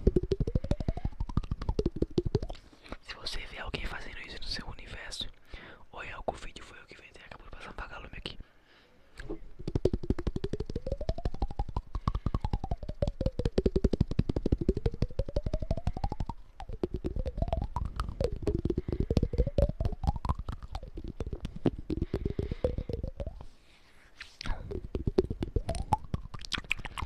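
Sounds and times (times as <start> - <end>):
fast mouth tapping: 0.0 - 5.2, 9.2 - 23.5, 24.4 - 27.0.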